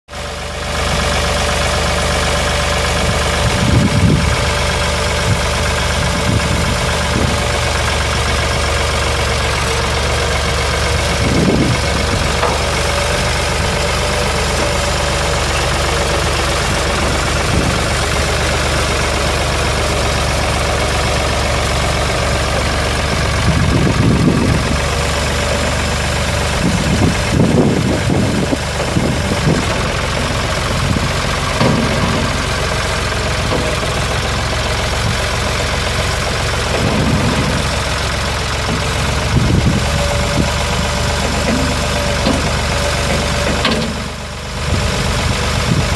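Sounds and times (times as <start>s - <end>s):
tractor diesel engine idling: 0.1s - 45.9s.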